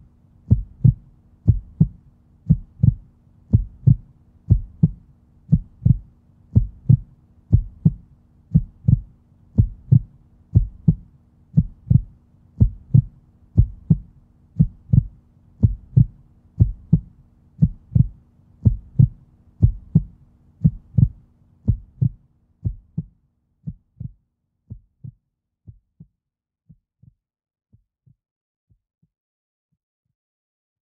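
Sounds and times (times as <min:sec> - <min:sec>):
faint steady drone: 0:00.0 - 0:23.1
heartbeat thuds: 0:00.5 - 0:26.1.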